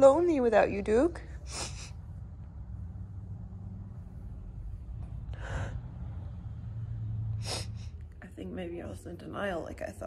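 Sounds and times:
low steady hum: 0:00.0 - 0:10.0
sharp sniffing breath: 0:01.5 - 0:02.0, 0:07.4 - 0:08.0.

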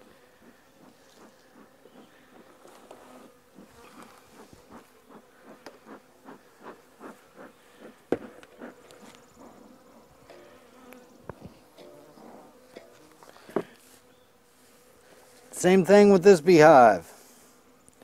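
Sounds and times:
honey bees buzzing: 0:00.0 - 0:18.0
soft strokes: 0:00.8 - 0:15.8, 0:17.0 - 0:17.8
metal bee smoker clack: 0:10.2 - 0:13.6.

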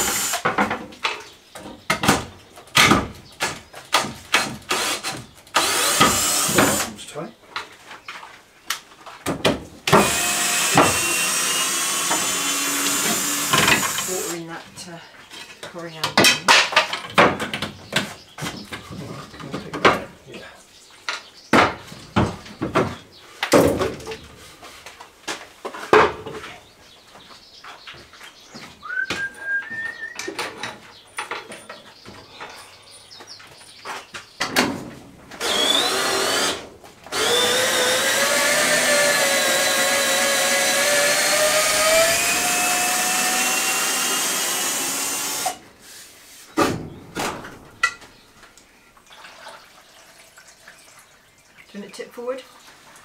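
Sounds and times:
cordless drill whine: 0:00.0 - 0:00.4, 0:05.6 - 0:06.9, 0:10.0 - 0:14.3, 0:35.4 - 0:45.6.

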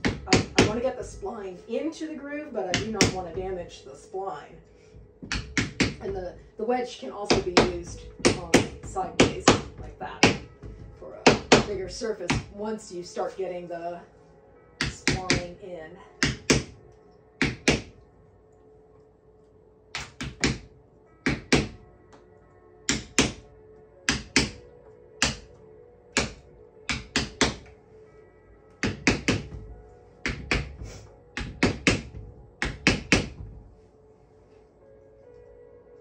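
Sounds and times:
wooden mallet tapping a wedge: 0:05.2 - 0:06.1, 0:22.9 - 0:23.4, 0:24.1 - 0:24.6, 0:26.2 - 0:27.7, 0:28.8 - 0:29.6, 0:30.2 - 0:30.8, 0:31.4 - 0:33.4.

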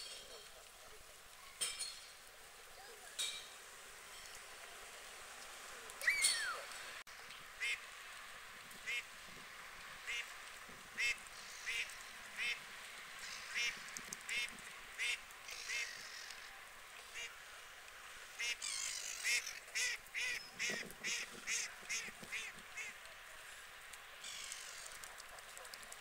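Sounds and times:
waterfowl calling: 0:07.6 - 0:08.0, 0:08.8 - 0:09.2, 0:10.0 - 0:10.4, 0:11.0 - 0:17.5, 0:18.2 - 0:23.6.

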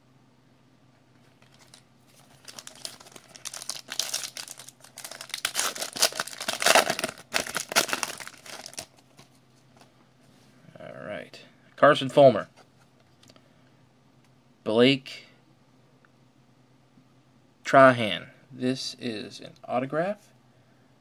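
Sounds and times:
foil wrapper tearing and crinkling: 0:01.5 - 0:09.0.

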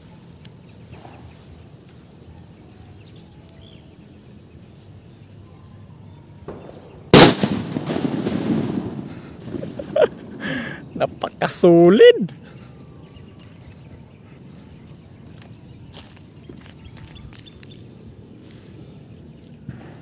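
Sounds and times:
firecracker bang: 0:06.5 - 0:11.2.

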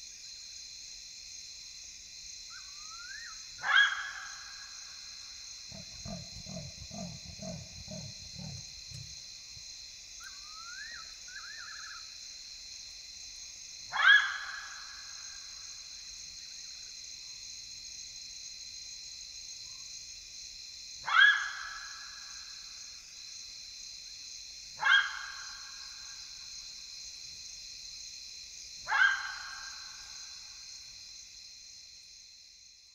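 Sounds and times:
jackal calling: 0:05.7 - 0:09.2.

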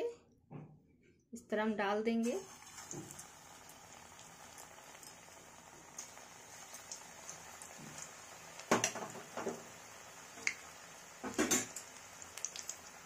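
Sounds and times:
batter sizzling in hot oil: 0:02.2 - 0:13.0.

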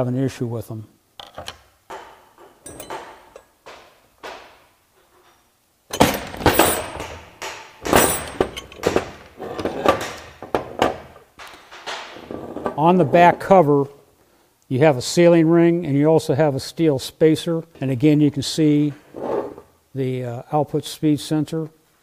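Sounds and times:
metal parts clanking on workbench: 0:01.2 - 0:04.4, 0:05.0 - 0:11.6.

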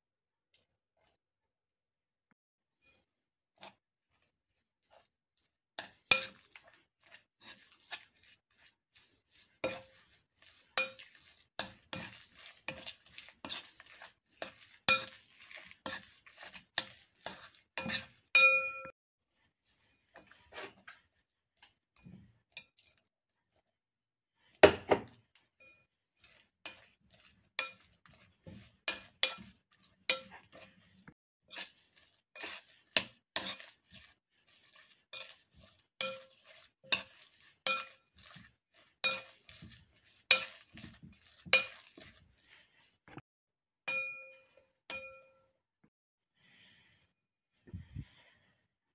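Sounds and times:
spoon clinking against ceramic bowl: 0:17.8 - 0:18.9, 0:30.1 - 0:30.4, 0:43.9 - 0:45.4.

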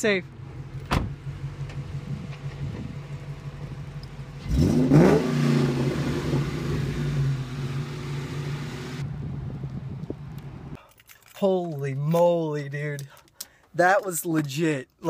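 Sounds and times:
car engine idling and revving: 0:00.2 - 0:10.8.

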